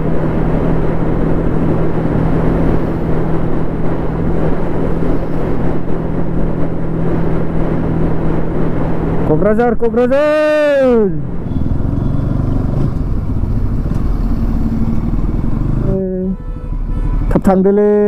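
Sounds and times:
motorcycle engine cruising: 0.0s - 9.3s, 11.1s - 17.6s
wind noise: 0.0s - 9.3s.

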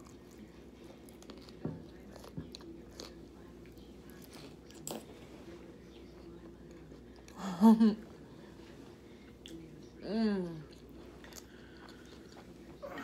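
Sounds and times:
person chewing fries: 0.0s - 5.3s, 10.5s - 13.0s
faint steady hum: 0.0s - 13.0s.

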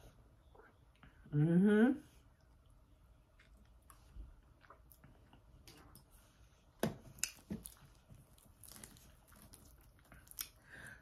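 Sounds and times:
wet chewing and smacking: 2.3s - 11.0s.

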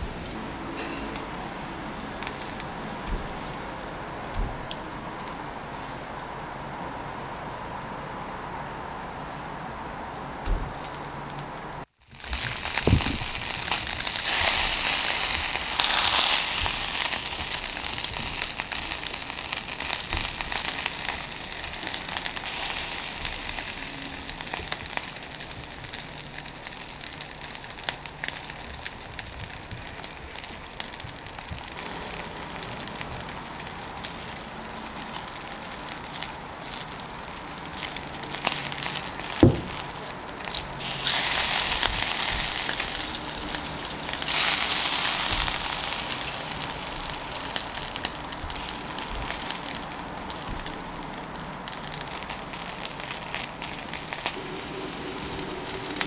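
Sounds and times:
meat sizzling on a grill: 0.0s - 6.0s, 10.7s - 56.0s.

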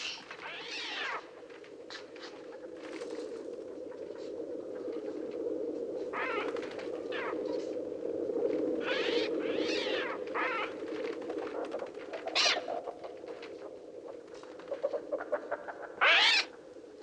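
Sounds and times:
birds screeching calls: 0.0s - 1.3s, 8.8s - 10.8s, 12.4s - 12.7s, 16.0s - 16.5s.

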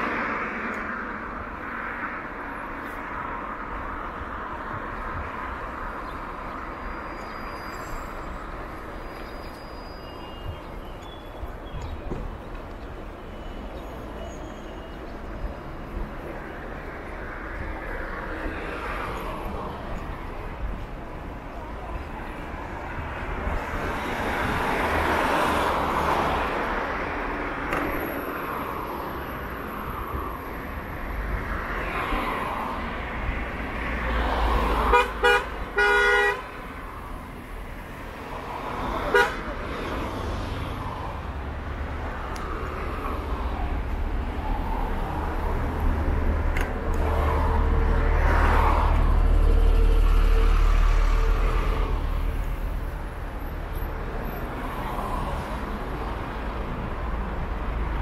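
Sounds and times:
street traffic passing: 0.0s - 58.0s
vehicle horn toots: 34.9s - 36.5s, 39.1s - 39.5s.

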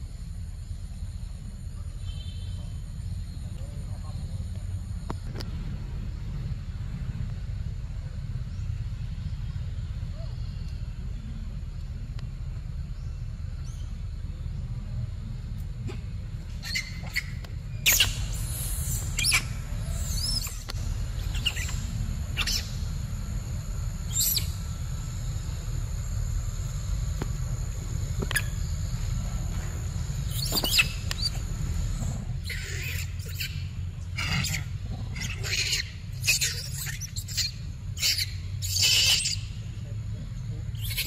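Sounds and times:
low rumble: 2.8s - 35.2s
high chirping animal calls: 16.6s - 23.1s, 24.0s - 24.7s, 28.2s - 29.3s, 30.2s - 39.6s, 40.7s - 41.0s.

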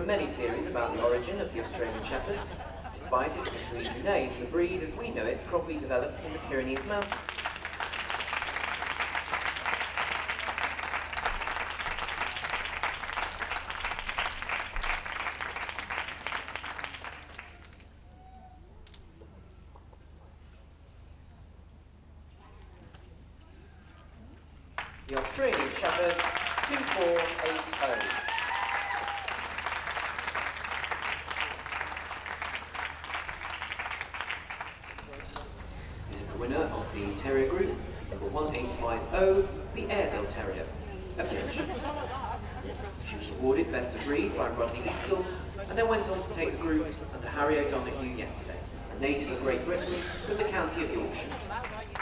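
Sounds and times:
audience applauding: 6.7s - 18.0s, 24.8s - 35.8s, 51.3s - 52.0s.

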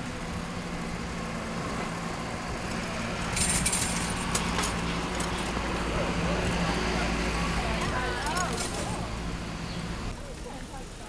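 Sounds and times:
bicycle rattling: 0.0s - 11.0s
street traffic engine hum: 0.0s - 11.0s.

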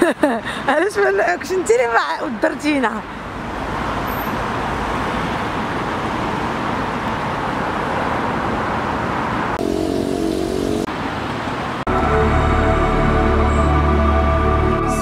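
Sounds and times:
road traffic passing: 0.0s - 15.0s
held musical notes: 11.9s - 15.0s.

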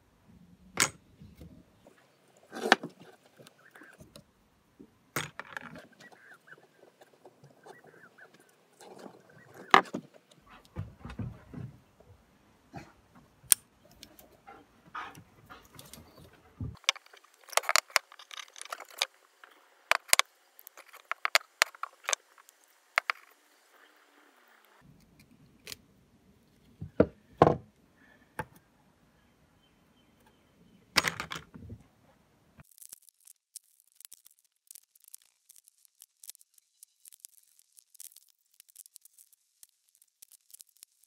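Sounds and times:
rapid scratching and tearing: 32.6s - 41.0s.

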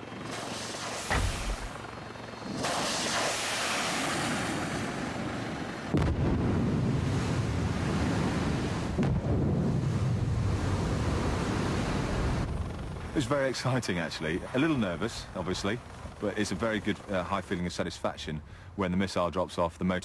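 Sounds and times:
rocket motor hiss: 0.2s - 1.8s, 2.5s - 4.4s
missile launch thump: 1.0s - 1.8s
deep explosion rumble: 5.9s - 8.2s, 8.9s - 11.2s.

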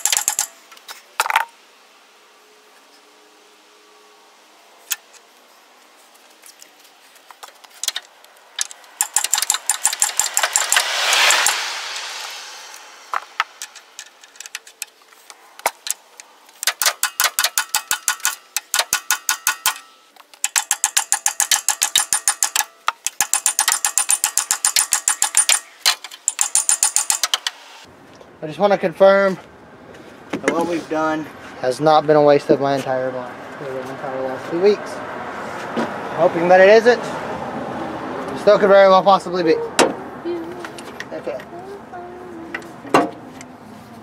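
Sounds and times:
rushing noise: 8.6s - 16.4s
mallet hammering metal gear: 16.8s - 19.9s, 20.5s - 25.7s, 26.3s - 27.4s.

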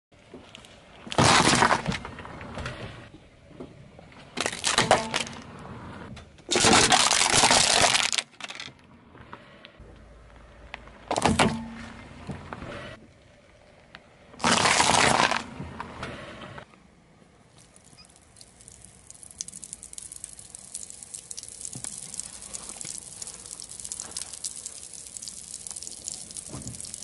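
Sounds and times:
tyre crushing crunchy objects: 1.0s - 2.2s, 6.5s - 8.7s, 14.4s - 15.5s.

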